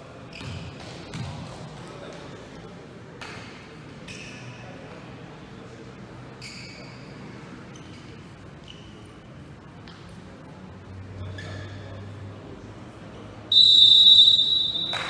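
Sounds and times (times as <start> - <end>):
murmur of voices: 0.0 - 15.0
ball bouncing on hard floor: 0.4 - 1.4.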